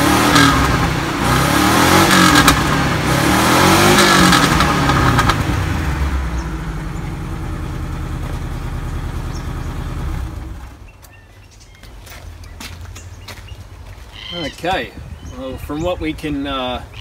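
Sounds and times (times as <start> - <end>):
car engine idling: 0.0 - 10.9.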